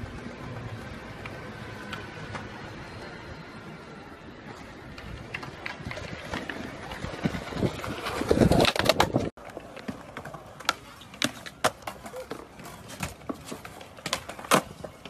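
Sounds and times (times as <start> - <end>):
skateboard wheels rolling on concrete: 0.0 - 15.0
skateboard clacks: 4.5 - 15.0.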